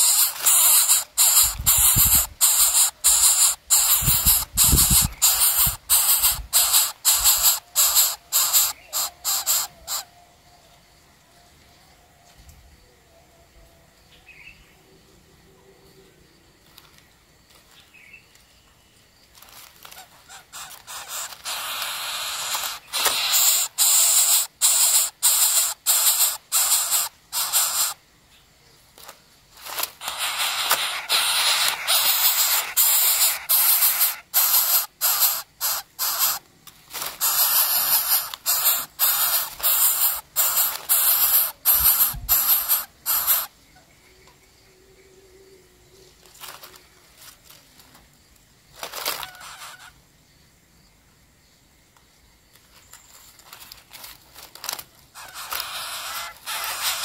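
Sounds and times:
chicks giving rasping begging calls: 0.0s - 10.2s, 19.8s - 28.0s, 29.6s - 43.5s, 48.8s - 50.0s, 54.6s - 57.0s.

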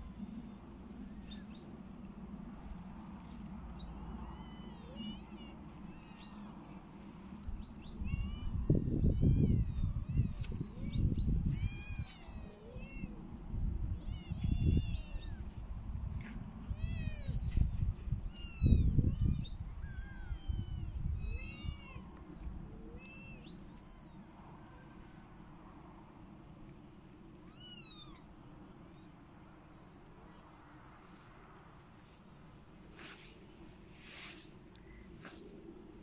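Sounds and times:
kittens mewing: 4.2s - 6.5s, 7.9s - 13.2s.

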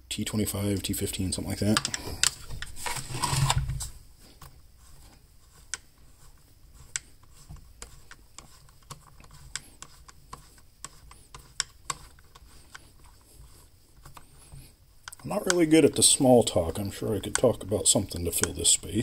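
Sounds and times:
screwdriver clicks and ticks: 1.7s - 2.7s.

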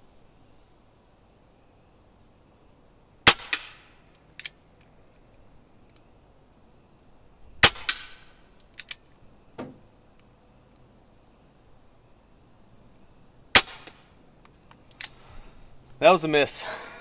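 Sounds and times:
air pistol crack: 3.3s - 3.9s, 7.6s - 8.3s, 13.6s - 14.1s.

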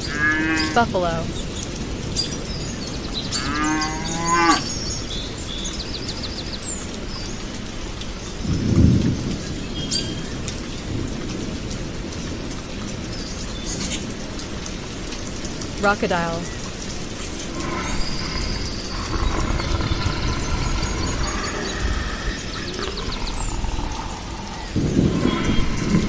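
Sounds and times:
outdoor hiss: 0.0s - 26.0s
buffalo lowing: 17.3s - 26.0s.

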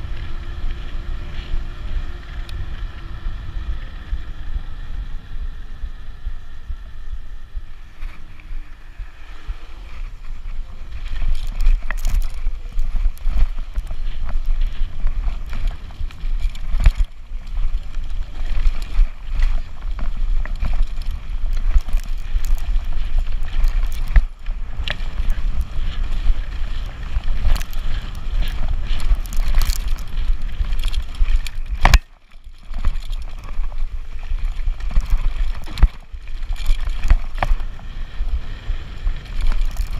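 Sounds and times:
wind rumble on microphone: 0.0s - 39.9s
bike knocks and rattles: 10.2s - 38.4s.

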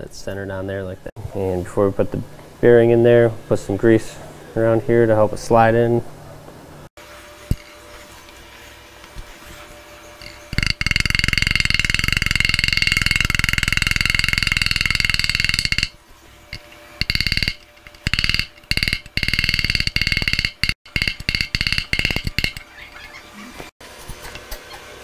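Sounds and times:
hammer striking metal rapidly: 10.2s - 22.7s.

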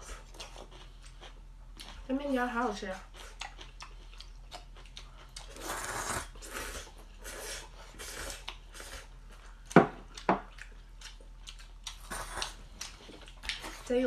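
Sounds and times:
person chewing: 0.0s - 2.1s, 3.1s - 13.9s
person slurping noodles: 5.5s - 9.1s, 12.0s - 12.5s.

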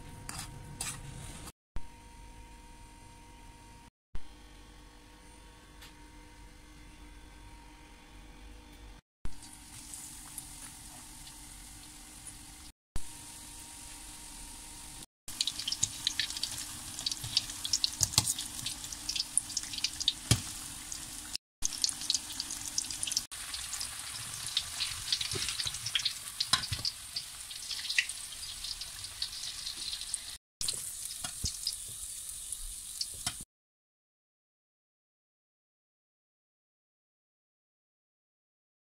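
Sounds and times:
food deep-frying in oil: 9.3s - 33.5s.

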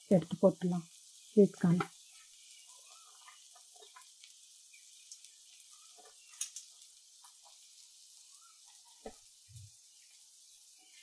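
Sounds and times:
vegetables sizzling: 0.0s - 11.0s
corn kernels ticking into pot: 1.7s - 10.2s.

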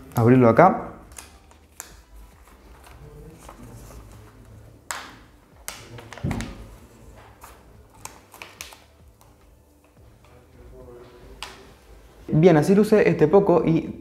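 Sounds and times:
plastic film crinkling: 1.0s - 10.4s.

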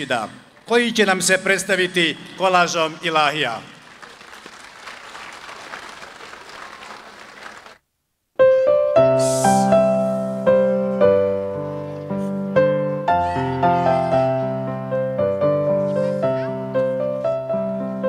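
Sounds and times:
audience applause: 3.0s - 7.8s
piano keyboard notes: 8.4s - 18.0s.

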